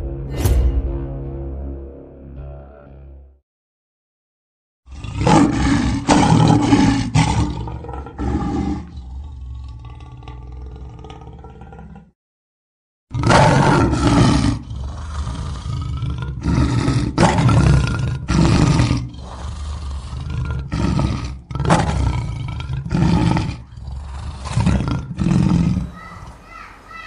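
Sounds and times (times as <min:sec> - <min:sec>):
lion roaring: 0:04.9 - 0:12.2, 0:13.1 - 0:27.0.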